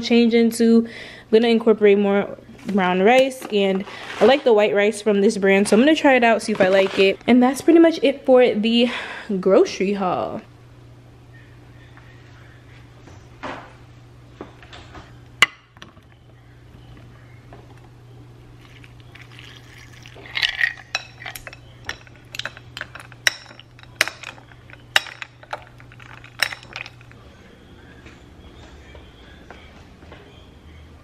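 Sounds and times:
liquid pouring over ice: 18.6 - 22.2, 25.5 - 27.1
spoon and ice clinking: 18.6 - 27.2.

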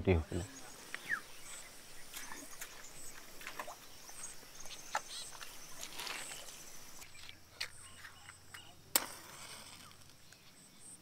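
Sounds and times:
faint steady hiss: 0.0 - 11.0
bird chirps: 0.3 - 8.8.

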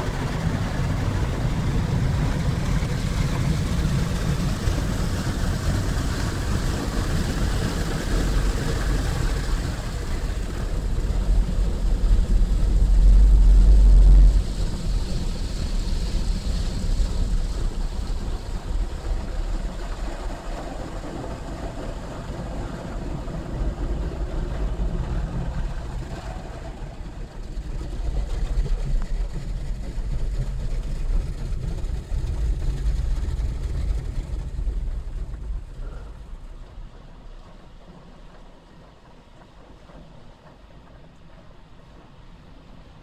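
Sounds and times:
low rumble of car wash: 0.0 - 43.0
water jets drumming on a car: 0.0 - 43.0.

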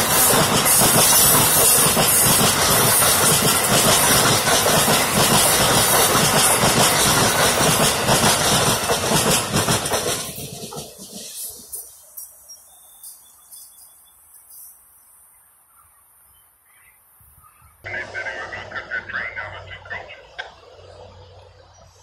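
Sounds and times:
rail clatter: 0.0 - 12.0
train cars rushing past: 0.0 - 12.5, 17.8 - 22.0.

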